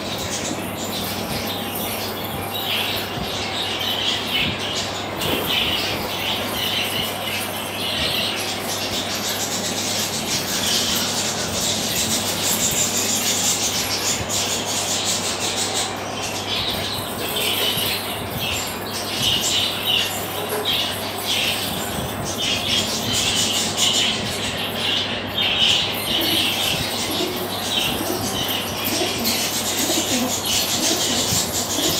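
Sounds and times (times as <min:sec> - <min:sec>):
fast steady rustling of feeding: 0:00.0 - 0:31.9.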